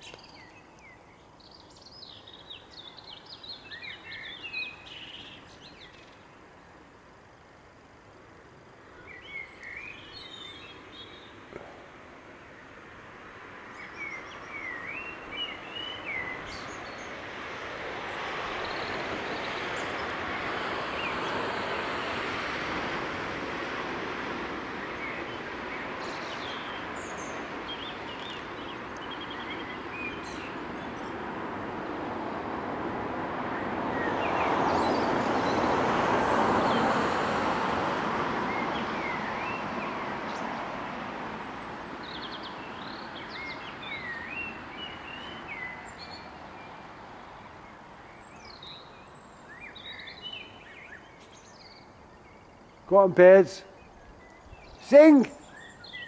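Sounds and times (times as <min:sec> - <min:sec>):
broad rushing noise: 0:10.8 - 0:47.1, 0:54.8 - 0:55.5
birds chirping: 0:13.7 - 0:22.4, 0:24.6 - 0:31.3, 0:41.6 - 0:56.0.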